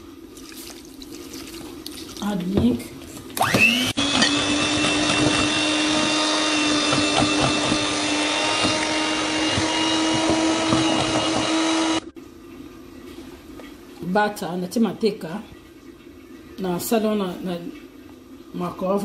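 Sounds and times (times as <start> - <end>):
electric hand mixer whining: 3.4 - 12.1.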